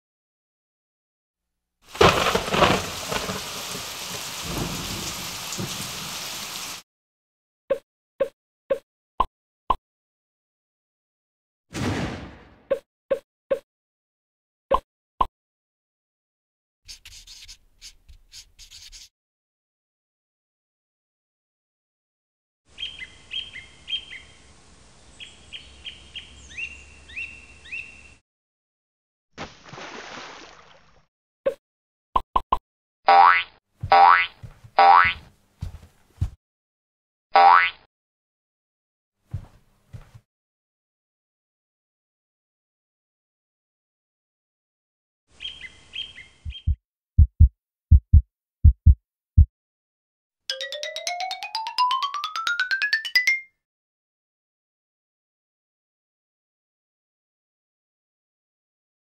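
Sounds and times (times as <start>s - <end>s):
thunder crack: 1.9s - 6.0s
downpour hiss: 1.9s - 6.8s
small songbird chirping: 22.7s - 28.2s, 45.4s - 46.8s
drip plops: 29.4s - 30.8s.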